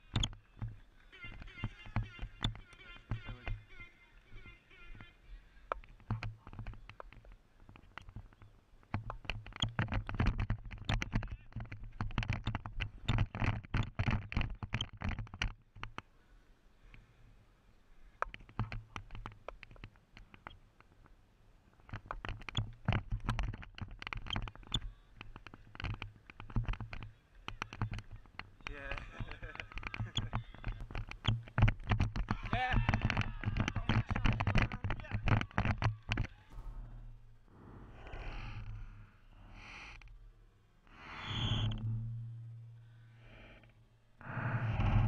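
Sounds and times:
footsteps: 0:36.4 - 0:39.6
low rumble: 0:36.5 - 0:45.0.

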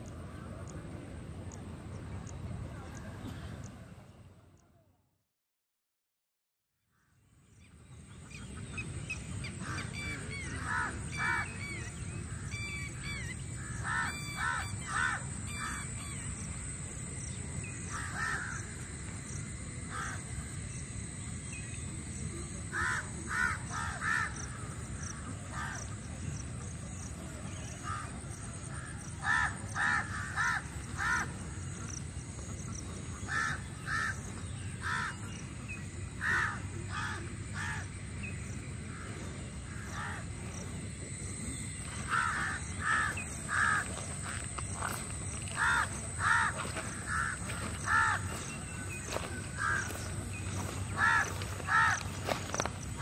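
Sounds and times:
crows cawing: 0:09.6 - 0:16.4, 0:17.9 - 0:18.8, 0:19.9 - 0:20.3, 0:22.7 - 0:25.9, 0:27.8 - 0:31.6, 0:33.2 - 0:35.4, 0:36.2 - 0:37.9, 0:38.9 - 0:40.3, 0:41.8 - 0:53.0.

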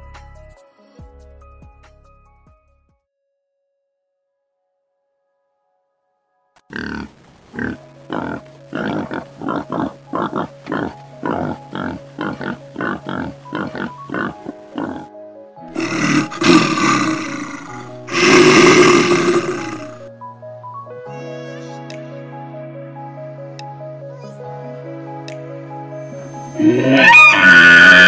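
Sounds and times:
background music: 0:00.0 - 0:03.0, 0:06.0 - 0:28.0
animal grunting calls: 0:06.7 - 0:15.1, 0:15.7 - 0:20.1, 0:26.5 - 0:28.0.

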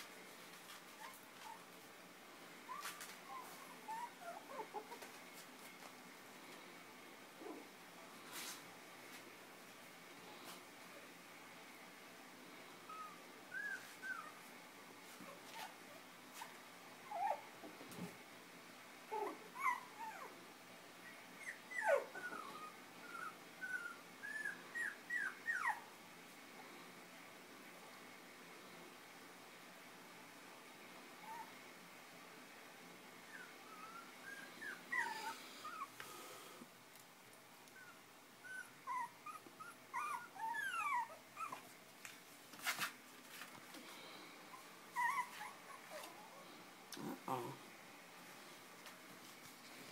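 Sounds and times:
puppies whining and squeaking: 0:02.7 - 0:05.2, 0:12.9 - 0:14.4, 0:16.4 - 0:17.5, 0:19.1 - 0:20.3, 0:21.0 - 0:25.8, 0:33.3 - 0:35.9, 0:37.8 - 0:41.7, 0:44.5 - 0:46.4.

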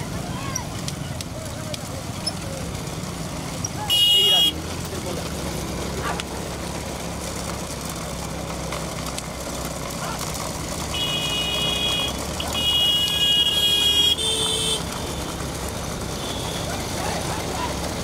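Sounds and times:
low rumble of vehicles: 0:00.0 - 0:18.0
high-pitched vehicle horn: 0:03.8 - 0:04.6, 0:10.9 - 0:15.4, 0:16.2 - 0:16.8.

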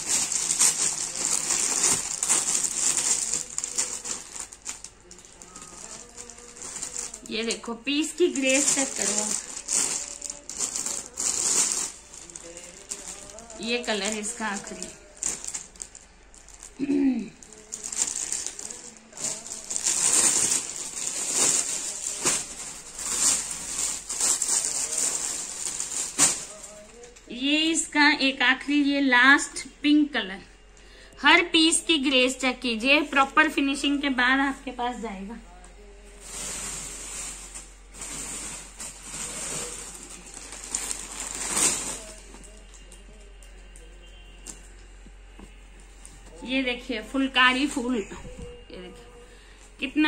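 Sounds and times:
fabric rustling and swishing: 0:05.4 - 0:15.6, 0:17.6 - 0:26.7.

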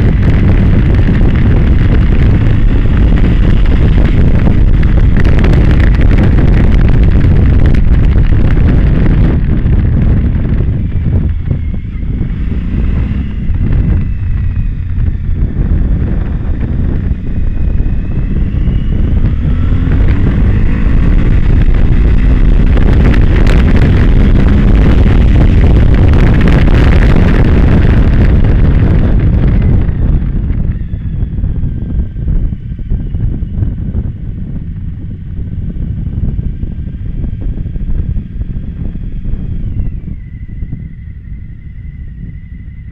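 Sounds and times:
motorcycle engine running: 0:00.0 - 0:42.9
wind buffeting microphone: 0:00.0 - 0:42.9.

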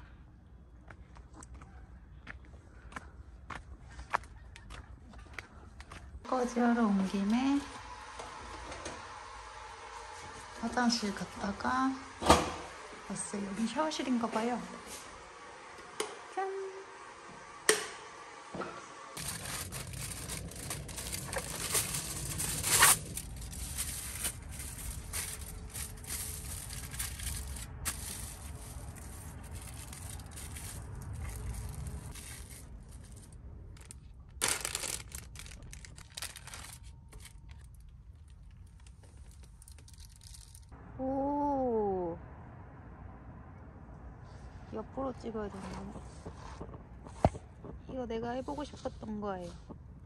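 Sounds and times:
packaging tearing and crinkling: 0:19.2 - 0:40.7
steady low rumble: 0:19.2 - 0:50.0.

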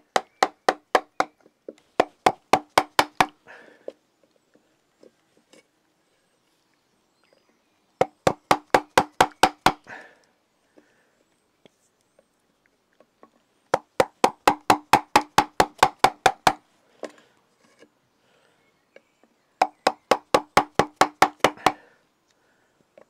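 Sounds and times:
maul striking wood: 0:00.0 - 0:03.4, 0:08.0 - 0:09.9, 0:13.7 - 0:16.6, 0:19.6 - 0:21.9.

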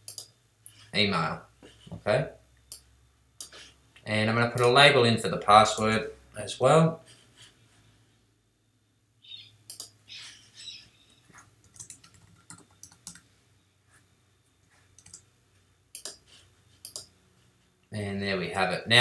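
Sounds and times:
computer keyboard keys clicking: 0:11.6 - 0:13.2, 0:15.0 - 0:15.2, 0:16.9 - 0:17.1.

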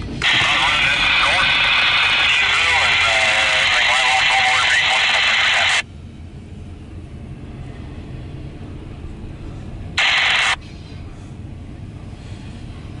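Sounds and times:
freight train rumbling past: 0:00.0 - 0:01.5, 0:05.8 - 0:10.0, 0:10.6 - 0:13.0
loud hiss: 0:10.0 - 0:10.6.

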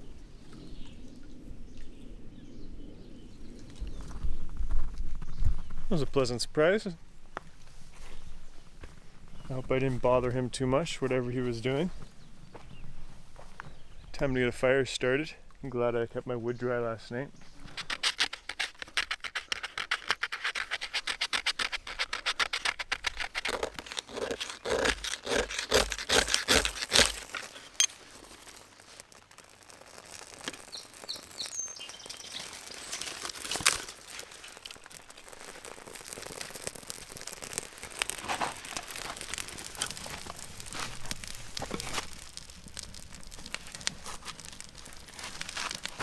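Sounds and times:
blade strokes on dry firewood: 0:17.6 - 0:46.0
wood handling ticks: 0:17.7 - 0:46.0.

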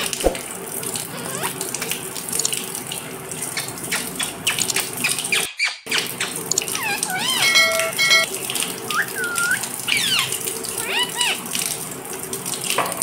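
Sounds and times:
running water splashing: 0:00.0 - 0:13.0
parakeet squeaky calls: 0:01.1 - 0:01.6, 0:06.7 - 0:08.3, 0:08.9 - 0:11.4.

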